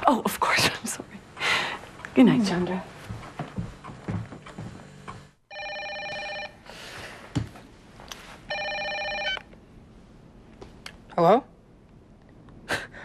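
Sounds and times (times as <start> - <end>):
telephone ringing: 5.5 - 6.7, 8.5 - 9.5.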